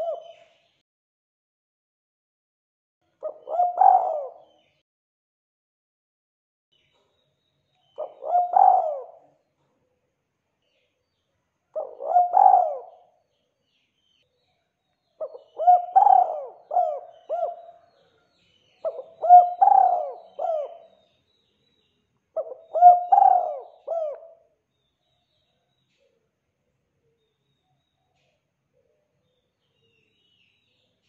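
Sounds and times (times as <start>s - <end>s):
dove cooing: 0.0s - 0.5s, 3.2s - 4.7s, 8.0s - 9.3s, 11.8s - 13.1s, 15.2s - 17.9s, 18.8s - 21.0s, 22.4s - 24.4s.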